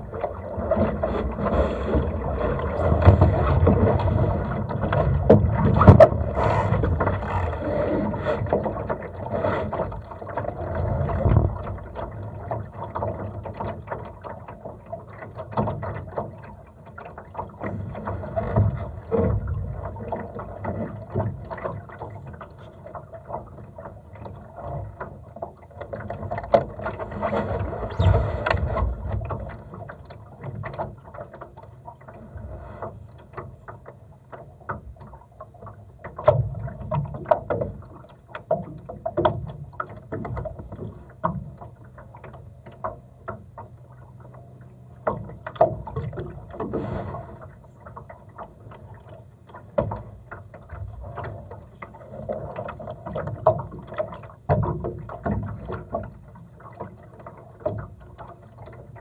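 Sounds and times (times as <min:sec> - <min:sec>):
water lapping against boat hull: 0:00.0 - 0:59.0
boat clicks and knocks: 0:00.2 - 0:32.3, 0:32.9 - 0:46.8, 0:47.4 - 0:59.0.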